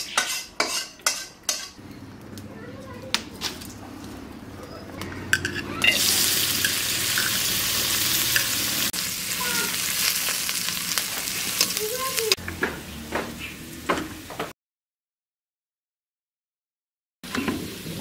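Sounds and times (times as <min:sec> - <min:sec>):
metal spatula scraping pan: 0:00.0 - 0:01.8, 0:05.3 - 0:08.8
onions sizzling in hot oil: 0:05.7 - 0:14.4, 0:17.3 - 0:18.0.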